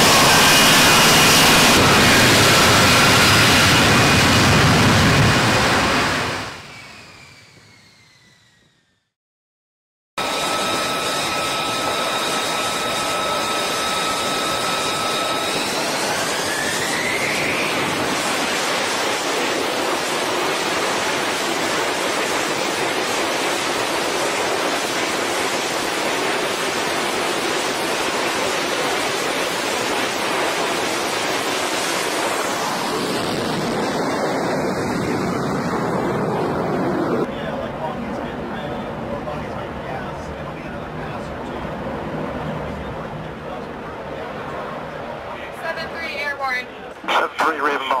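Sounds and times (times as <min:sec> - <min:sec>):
jet engine whine and roar: 0:00.0 - 0:09.2, 0:10.2 - 0:48.0.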